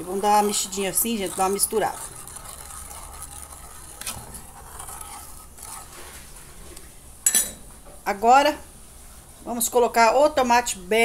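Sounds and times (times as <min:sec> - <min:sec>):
metal spoon scraping a pan: 0:00.0 - 0:06.4.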